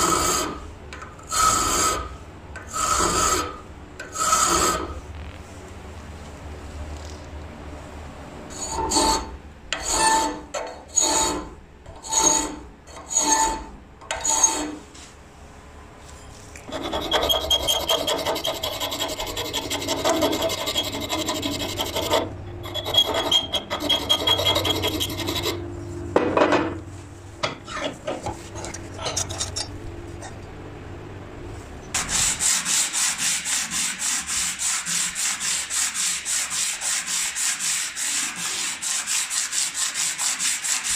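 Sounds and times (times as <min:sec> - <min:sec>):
file rasping on brass: 0:16.7 - 0:25.6, 0:32.0 - 0:40.9.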